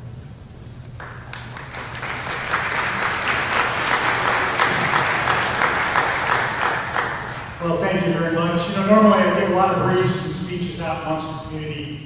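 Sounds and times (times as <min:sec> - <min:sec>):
audience applauding: 0:01.0 - 0:07.6.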